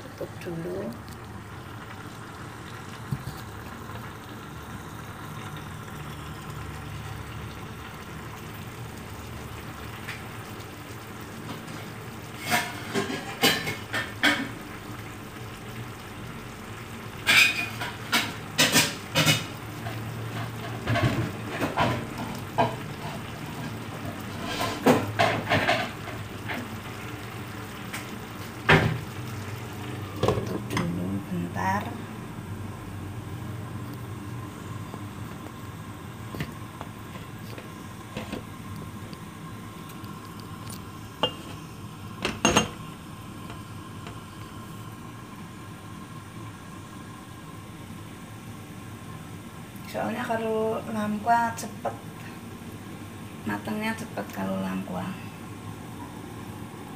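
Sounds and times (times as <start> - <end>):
food sizzling in a pan: 0.0 - 56.9.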